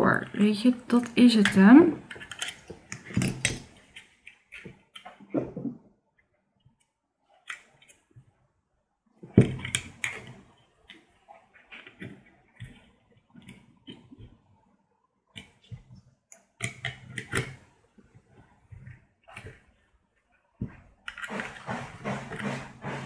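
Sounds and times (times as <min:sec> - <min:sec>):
small plastic clicks and knocks: 0:01.4 - 0:05.7, 0:09.3 - 0:11.1, 0:15.3 - 0:17.7.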